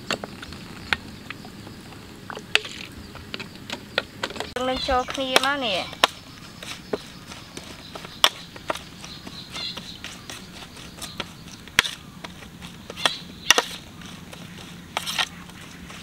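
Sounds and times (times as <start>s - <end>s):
spoon scraping metal tray: 4.8s - 16.0s.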